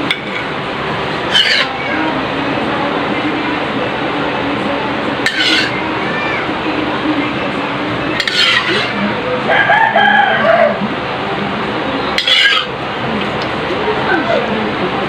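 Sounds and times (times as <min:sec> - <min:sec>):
metal spoon scraping ceramic plate: 0:01.3 - 0:01.8, 0:05.2 - 0:05.8, 0:08.2 - 0:09.0, 0:12.2 - 0:12.7
rooster crowing: 0:09.5 - 0:10.9.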